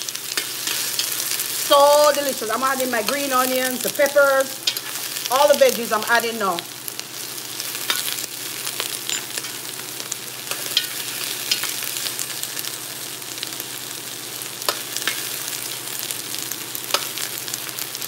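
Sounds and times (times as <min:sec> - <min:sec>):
vegetables sizzling in oil: 0:00.0 - 0:18.0.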